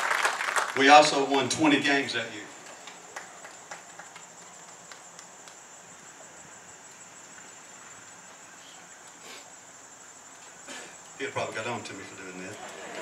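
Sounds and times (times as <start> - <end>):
insects singing: 0.8 - 13.0.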